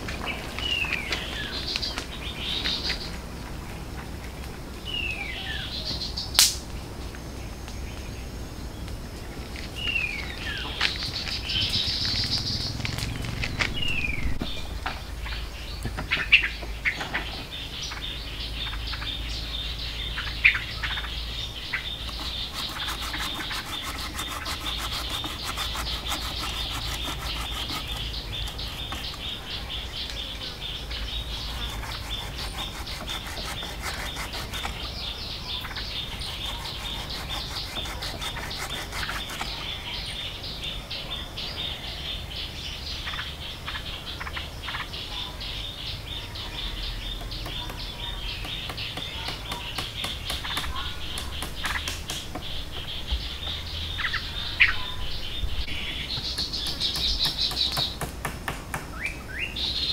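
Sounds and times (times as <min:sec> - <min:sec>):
sharp falling bird calls: 0:00.0 - 0:03.2, 0:09.6 - 0:40.5
birds chirping: 0:00.0 - 0:59.9.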